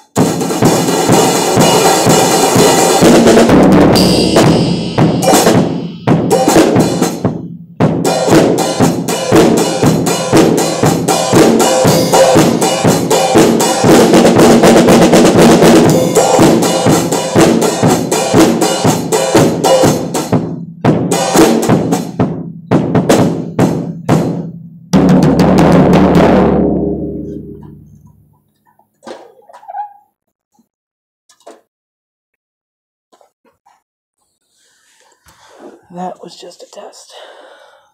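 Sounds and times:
drum kit played hard: 0:00.0 - 0:28.2
cymbal crashes: 0:03.9 - 0:07.3, 0:08.0 - 0:14.5, 0:15.8 - 0:20.0.

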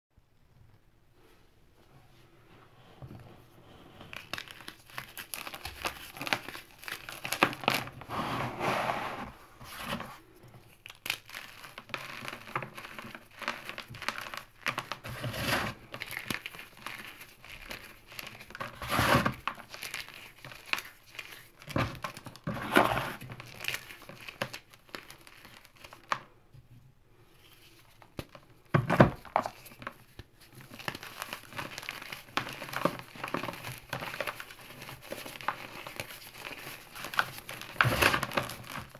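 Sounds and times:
fingers crushing crispy chalk: 0:04.0 - 0:08.0, 0:10.8 - 0:15.0, 0:15.8 - 0:22.5, 0:29.3 - 0:38.9.

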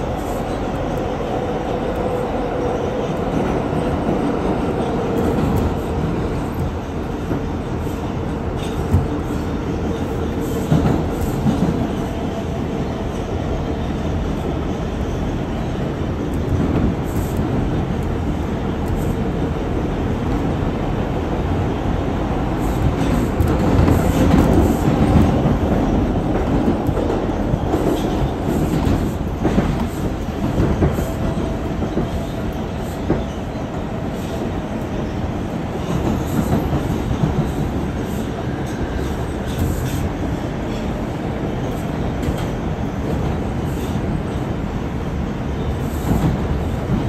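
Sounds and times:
subway train wheels rumbling: 0:00.0 - 0:47.0.

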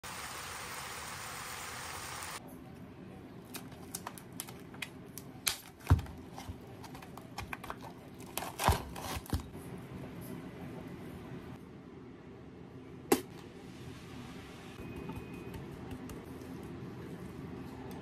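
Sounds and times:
food sizzling in a pan: 0:00.0 - 0:02.4.

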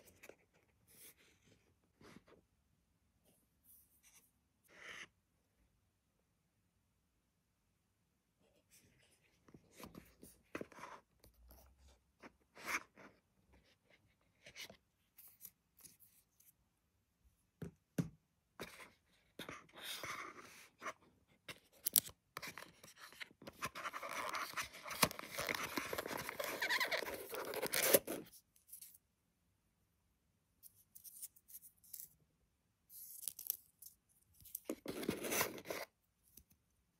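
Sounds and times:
cardboard rustling: 0:34.4 - 0:35.9.

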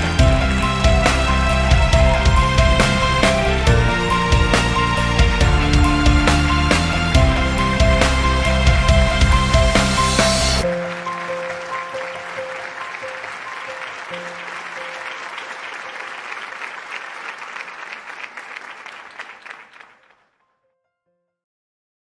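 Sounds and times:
background music: 0:00.0 - 0:17.2
crowd applause: 0:00.0 - 0:20.3.

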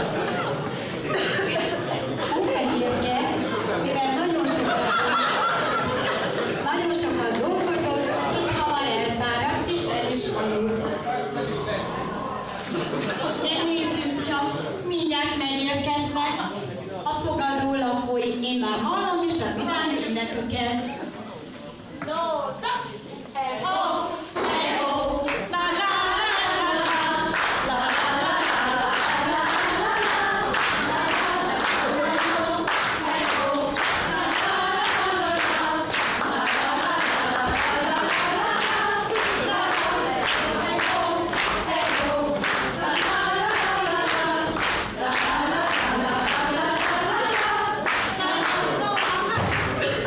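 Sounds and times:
women singing together: 0:00.0 - 0:11.0, 0:22.7 - 0:50.0
hand claps: 0:25.3 - 0:49.8.

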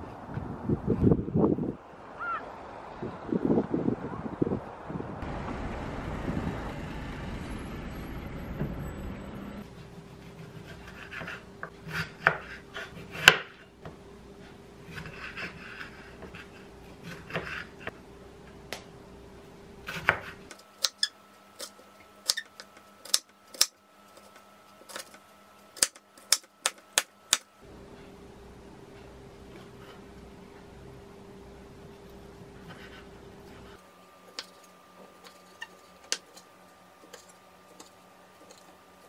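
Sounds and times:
knife slicing peppers: 0:19.9 - 0:25.2.

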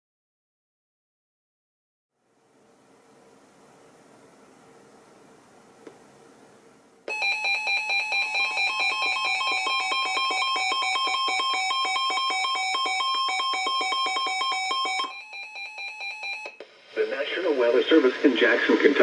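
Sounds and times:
rapid pulsing beeps: 0:07.1 - 0:16.6
steady alert tones: 0:07.1 - 0:16.6.

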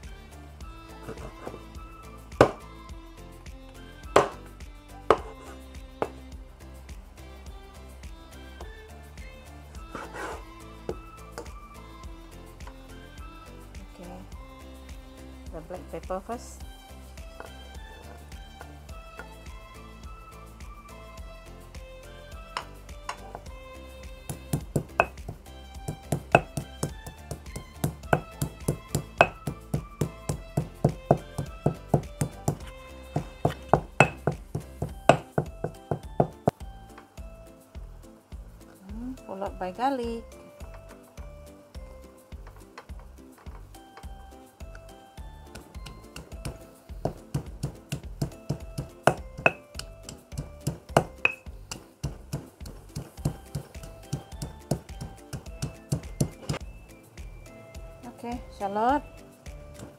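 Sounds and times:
background music: 0:00.0 - 0:59.9
stone pestle pounding in mortar: 0:02.4 - 0:02.6, 0:04.1 - 0:04.4, 0:05.1 - 0:05.4, 0:24.2 - 0:36.6, 0:45.6 - 0:56.6.

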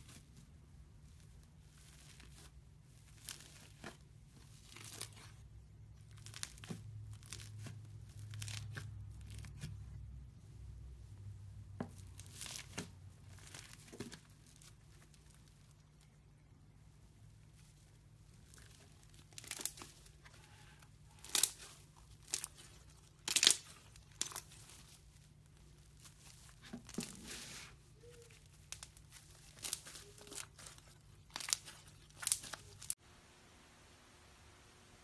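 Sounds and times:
slime crackling and popping: 0:06.0 - 0:09.8, 0:18.3 - 0:27.0, 0:28.0 - 0:33.0.

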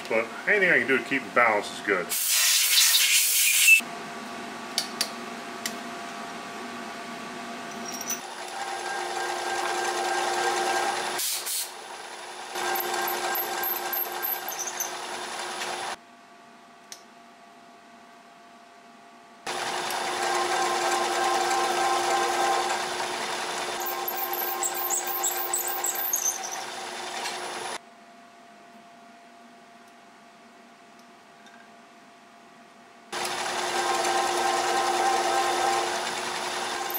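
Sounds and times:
milling machine spindle hum: 0:08.2 - 0:11.2, 0:11.8 - 0:16.0, 0:19.5 - 0:27.8, 0:33.2 - 0:36.9
high chirps from drill cutting: 0:12.6 - 0:15.0, 0:23.8 - 0:26.8.

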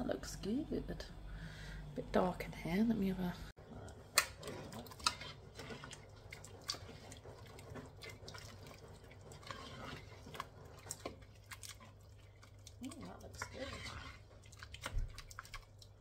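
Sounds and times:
soup sloshing: 0:04.0 - 0:16.0.

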